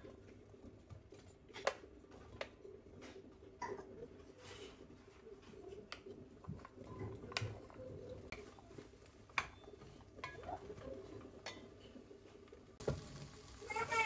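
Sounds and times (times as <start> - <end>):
wooden spatula stirring: 4.0 - 14.0
chopped vegetables tumbling into pot: 5.8 - 13.8.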